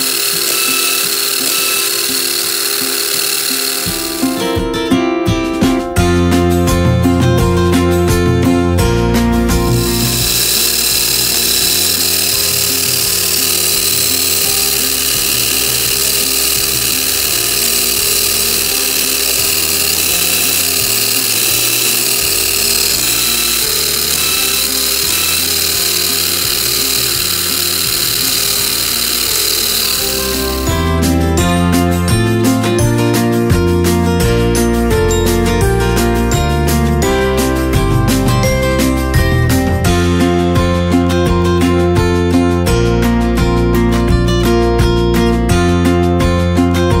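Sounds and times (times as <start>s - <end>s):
electric motor and gears whining: 0.0s - 4.6s, 9.6s - 31.4s.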